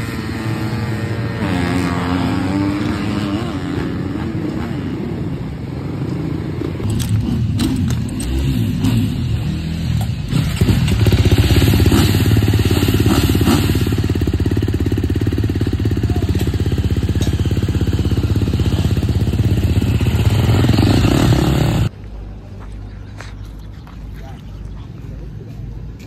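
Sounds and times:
outdoor background noise: 0.0 - 26.0
motorbike engine running: 10.3 - 21.9.

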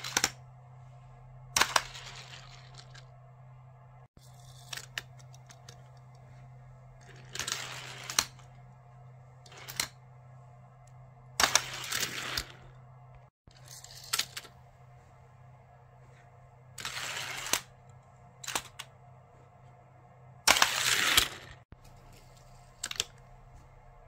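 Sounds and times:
toy cars rolling down plastic track: 7.0 - 8.3, 20.5 - 21.6.

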